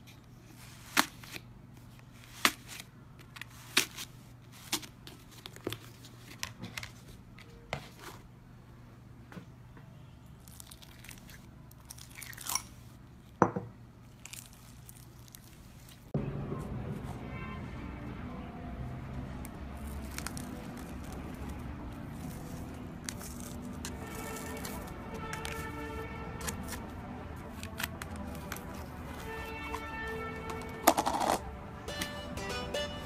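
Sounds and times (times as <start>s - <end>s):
slime crackling: 14.0s - 16.1s, 19.7s - 25.7s.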